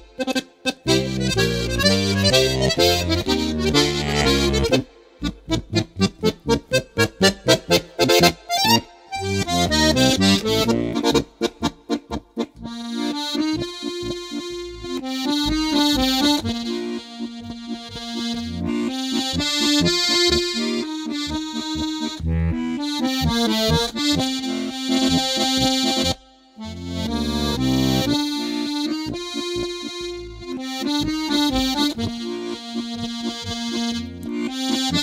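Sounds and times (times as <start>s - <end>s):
button accordion playing a march: 0.0s - 35.0s.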